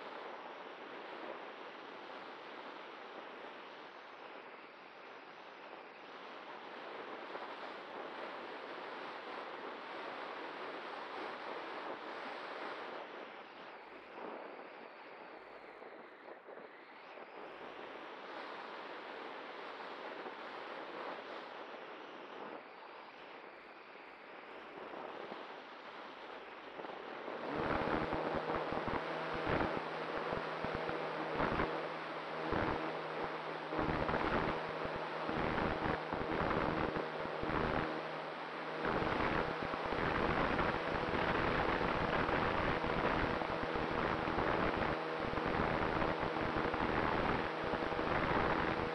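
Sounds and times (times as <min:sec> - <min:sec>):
propeller humming: 0:27.4 - 0:42.1.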